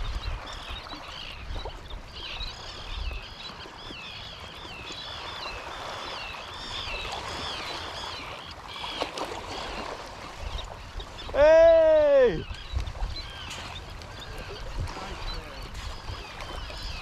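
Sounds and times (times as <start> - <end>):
wind rumble on microphone: 0.0 - 3.6, 10.2 - 17.0
seabirds calling: 0.0 - 17.0
surf washing: 4.6 - 17.0.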